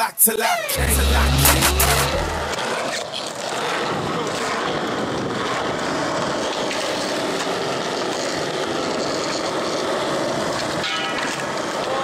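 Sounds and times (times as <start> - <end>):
skateboard wheels rolling on concrete: 2.5 - 12.0.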